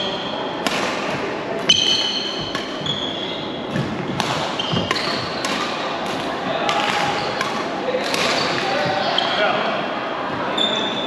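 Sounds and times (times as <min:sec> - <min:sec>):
rackets striking shuttlecock: 0:00.6 - 0:03.1, 0:03.7 - 0:09.0
shoes squeaking on wooden floor: 0:01.7 - 0:03.6, 0:04.5 - 0:05.6.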